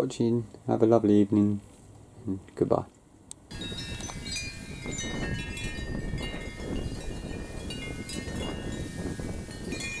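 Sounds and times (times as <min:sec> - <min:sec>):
chimes ringing: 0:03.5 - 0:10.0.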